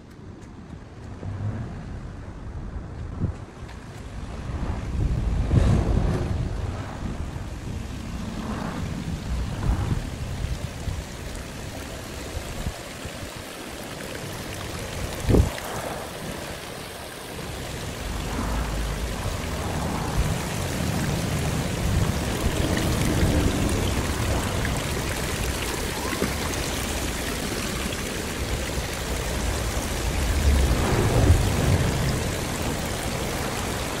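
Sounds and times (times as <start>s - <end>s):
low rumble: 0.9s - 11.1s, 17.8s - 25.6s, 29.0s - 33.8s
fountain water splashing and trickling: 7.3s - 34.0s.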